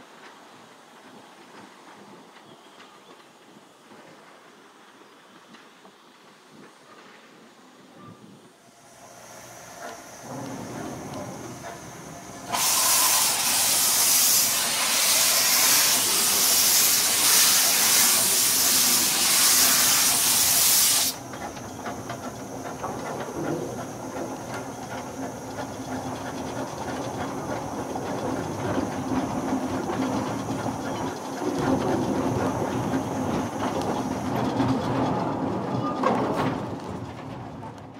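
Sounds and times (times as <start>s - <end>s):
loud steam hiss: 8.6s - 34.4s
locomotive mechanical clatter: 8.9s - 37.9s.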